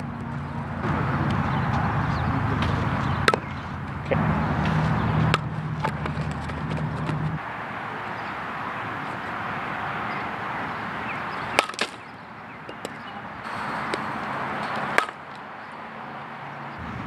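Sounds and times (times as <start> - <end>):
bat striking softball: 2.6 - 4.0, 4.6 - 7.2, 11.4 - 13.1, 13.9 - 15.4.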